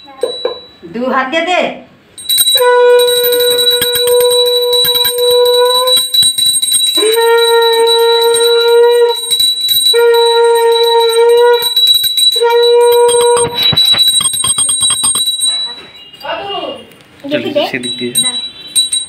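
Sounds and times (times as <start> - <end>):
hand bell ringing rapidly: 2.2 - 16.4, 17.8 - 19.0
conch shell blasts: 2.4 - 16.1.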